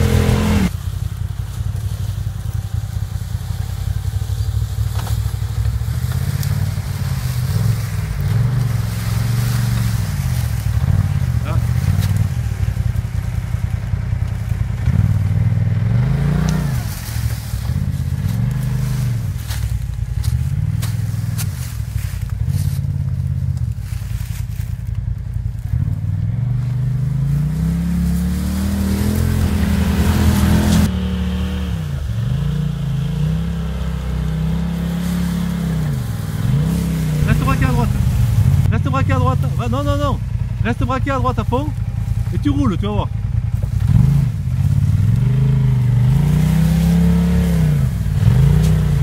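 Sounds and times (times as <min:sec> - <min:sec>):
engine revving at low speed: 0:00.0 - 0:49.0
leaves and twigs crackling under tyres: 0:00.0 - 0:49.0.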